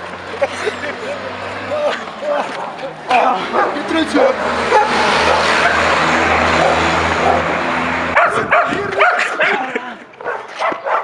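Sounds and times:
dog barking and yipping: 4.7s - 5.9s, 6.5s - 7.5s, 8.2s - 9.6s, 10.2s - 11.0s.

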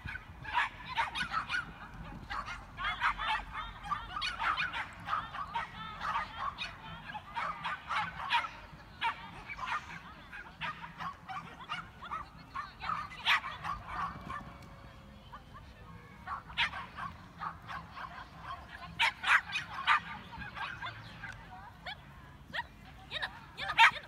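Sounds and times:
dog barking high-pitched: 2.3s - 9.8s, 19.0s - 20.0s.

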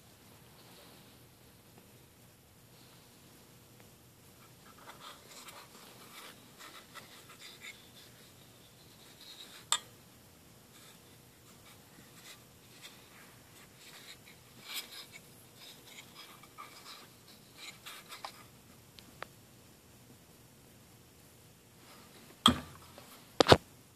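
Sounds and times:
soft rubbing: 4.3s - 9.7s, 10.6s - 18.8s.

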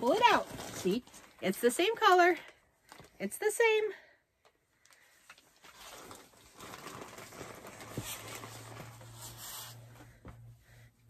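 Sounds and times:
plastic bag rustling: 0.0s - 2.0s, 4.8s - 10.2s.

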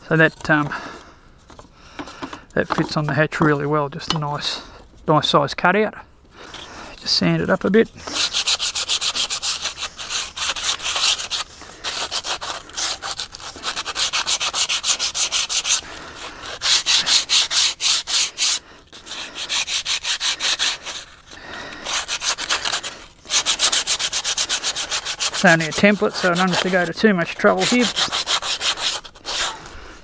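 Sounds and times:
sanding block rasping on wood: 8.0s - 29.6s.

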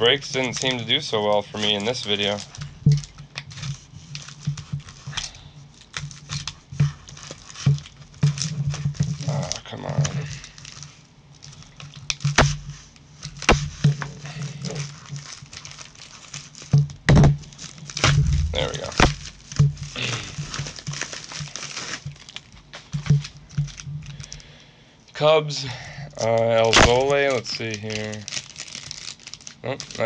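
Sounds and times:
plastic mailer crinkling and rustling: 0.0s - 24.5s, 26.1s - 30.0s
sharp crackles and clicks: 13.3s - 22.5s
steady low hum: 17.0s - 21.0s.

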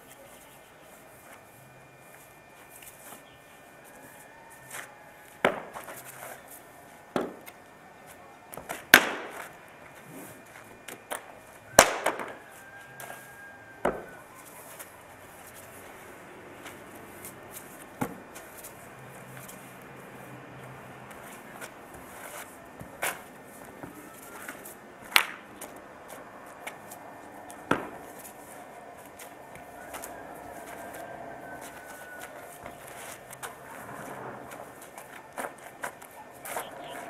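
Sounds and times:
spear cracks and slaps: 25.1s - 25.4s.

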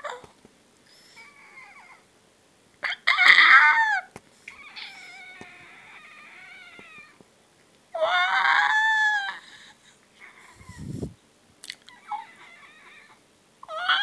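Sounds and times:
cat meowing: 3.2s - 7.2s.

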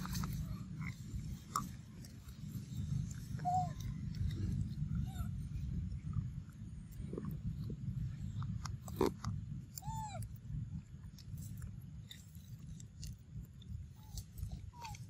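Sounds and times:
monkey chewing peanuts: 0.0s - 5.0s, 6.0s - 10.0s
low rumble: 0.0s - 15.0s.

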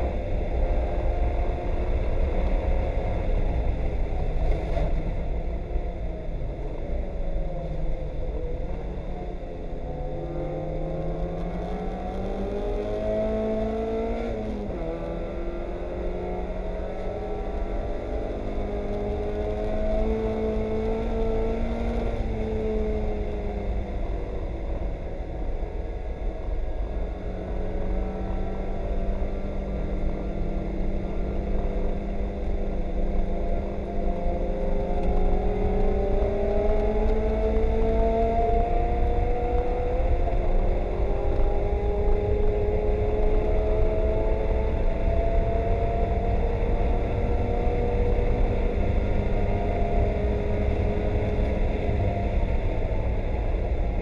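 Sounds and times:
race car engine revving: 27.6s - 54.0s.

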